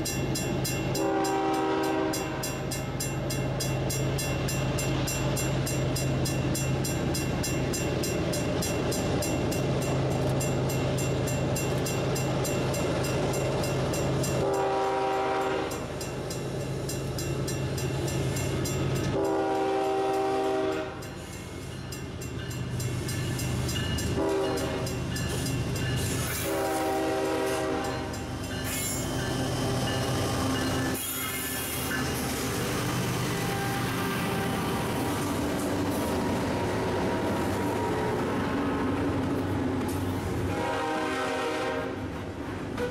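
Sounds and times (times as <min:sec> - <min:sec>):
crossing bell ringing: 0:00.0 - 0:14.5, 0:15.2 - 0:35.4
locomotive horn blasts: 0:01.0 - 0:02.6, 0:14.4 - 0:15.8, 0:19.1 - 0:21.1, 0:24.2 - 0:25.0, 0:26.3 - 0:28.2, 0:40.5 - 0:42.0.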